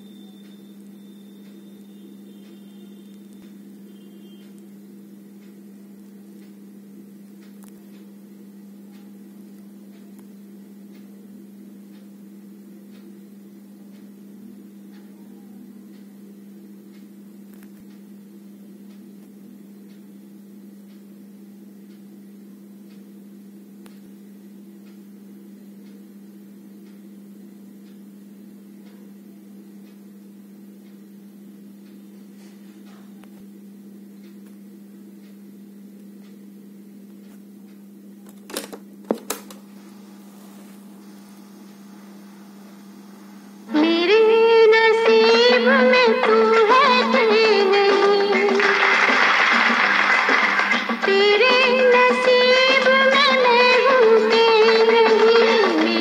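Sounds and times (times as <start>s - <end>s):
faint high whine: 0.0s - 7.0s, 38.2s - 50.3s
low electrical hum: 0.0s - 56.0s.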